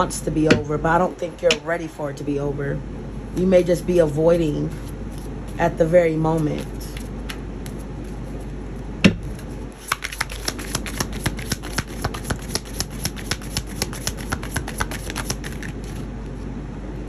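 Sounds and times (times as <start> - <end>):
cards being shuffled: 4.7 - 5.6, 6.4 - 8.5, 9.3 - 16.5.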